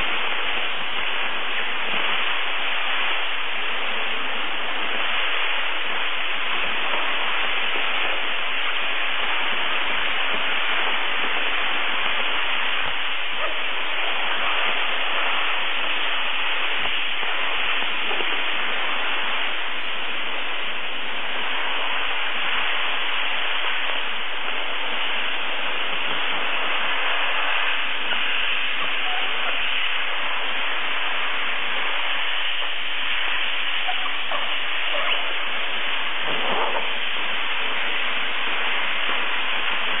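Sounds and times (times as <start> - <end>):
steam cleaner jet hissing: 0.0 - 40.0.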